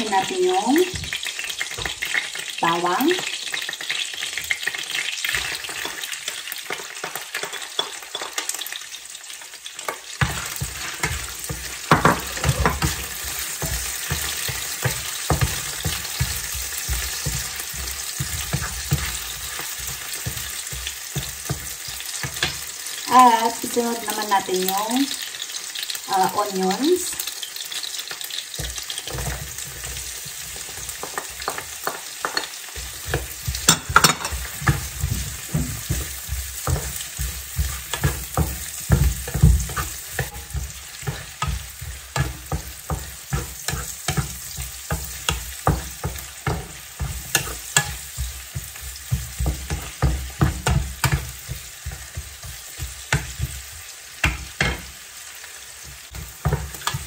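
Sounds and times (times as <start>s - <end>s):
onions sizzling in hot oil: 0.0s - 57.0s
wooden spatula scraping a pan: 10.1s - 24.4s, 27.0s - 54.9s.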